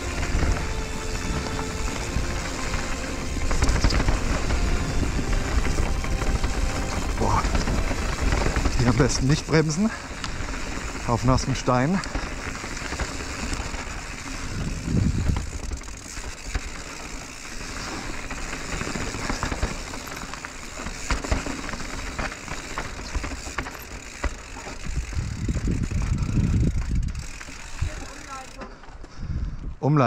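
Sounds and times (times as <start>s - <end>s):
heavy rumble: 0.0s - 28.0s
bike rattling: 0.0s - 29.8s
bike tyres crunching on trail: 0.0s - 30.0s.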